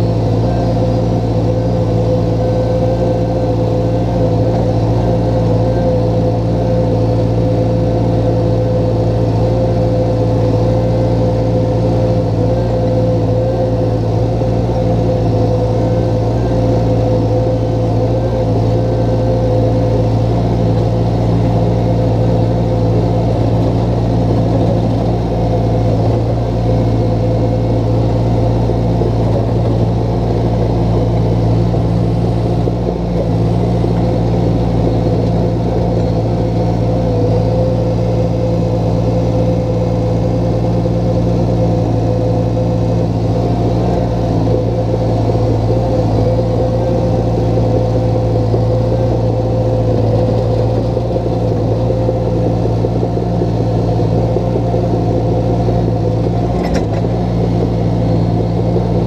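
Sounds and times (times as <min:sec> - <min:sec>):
diesel engine running: 0:00.0 - 0:59.0
steady whine: 0:00.0 - 0:59.0.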